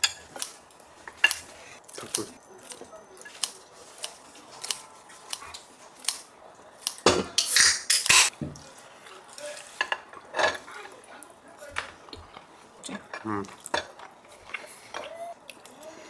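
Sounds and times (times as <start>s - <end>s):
utensils clinking against dishes: 0.0s - 4.8s, 7.0s - 8.3s, 9.4s - 11.0s.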